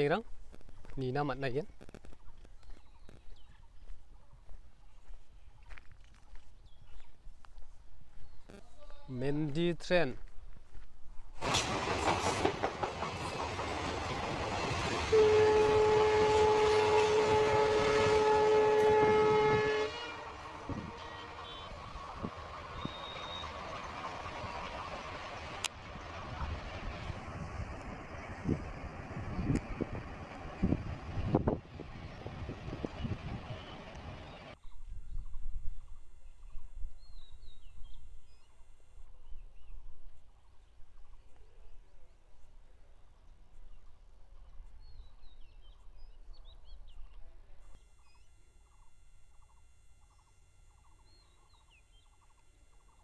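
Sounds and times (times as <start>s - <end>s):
train passing: 11.3s - 34.6s
train horn long note: 15.0s - 21.9s
wind rumbling on microphone: 25.8s - 38.4s.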